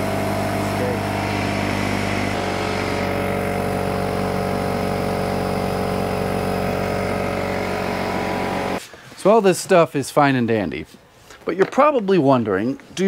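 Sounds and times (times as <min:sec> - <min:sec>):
air compressor running: 0:00.0 - 0:08.8.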